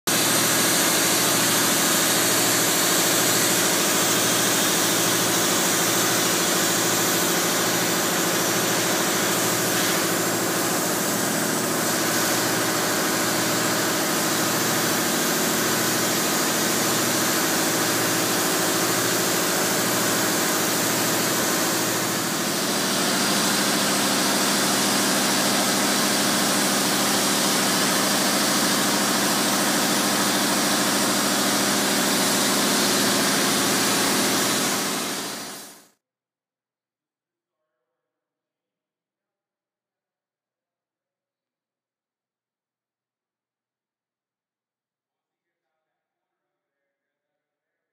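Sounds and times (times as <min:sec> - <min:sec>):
machine hum: 0:00.1 - 0:35.8
spray foam hiss: 0:00.1 - 0:35.8.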